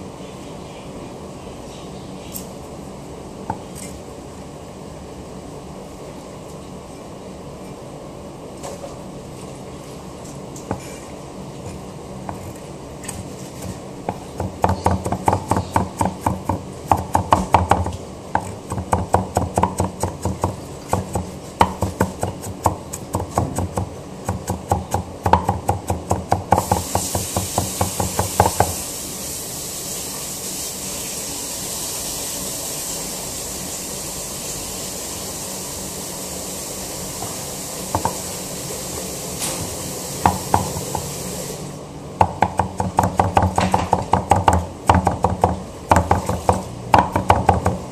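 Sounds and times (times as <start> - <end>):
knife chopping on cutting board: 12.2 - 28.8, 38.0 - 38.2, 40.3 - 41.1, 42.2 - 47.9
steady high hiss: 26.3 - 42.6.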